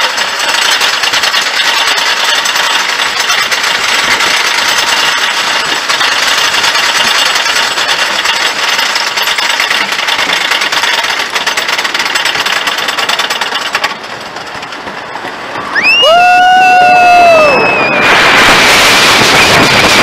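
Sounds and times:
anti-rollback dogs clicking: 0.0 - 15.8
roller coaster lift chain clattering: 0.0 - 20.0
rider screaming: 15.7 - 18.4.

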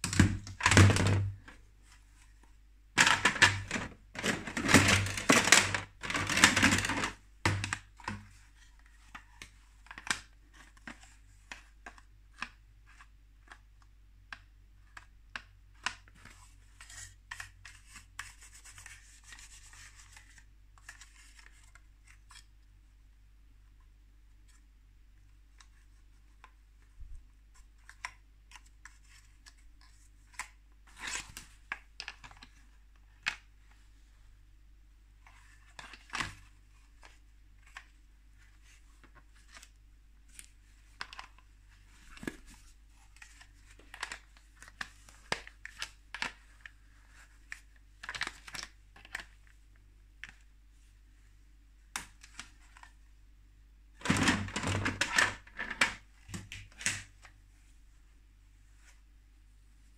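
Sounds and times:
toys clattering in plastic bin: 0.0 - 1.4, 3.0 - 7.9, 54.0 - 57.1.

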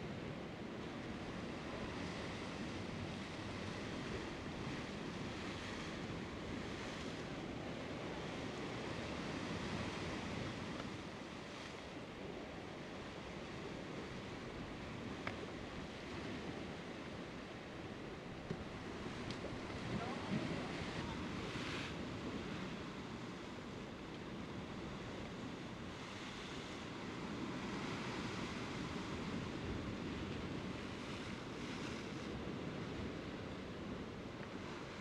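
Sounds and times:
sea surf breaking on rocks: 0.2 - 35.0
faint click: 15.2 - 15.4.

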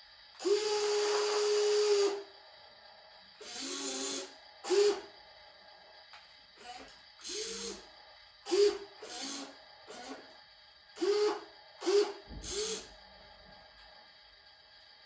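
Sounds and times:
toy excavator electric motors whirring: 0.3 - 2.3, 3.4 - 5.1, 6.6 - 13.0.

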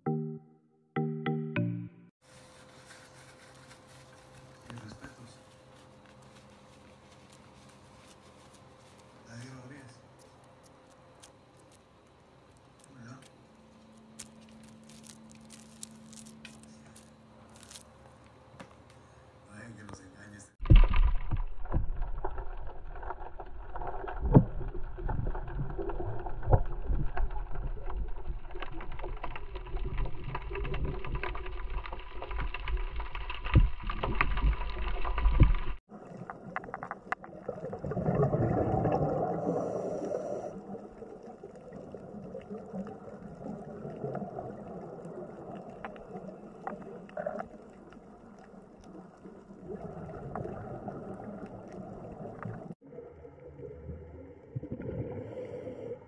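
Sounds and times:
muffled underwater rumbling: 20.6 - 56.0
water gurgling: 20.6 - 56.0.

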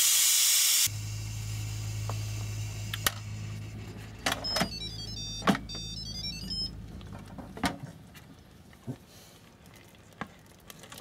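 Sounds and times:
steady low hum: 0.9 - 8.7
electronic beep tune: 4.3 - 6.9.

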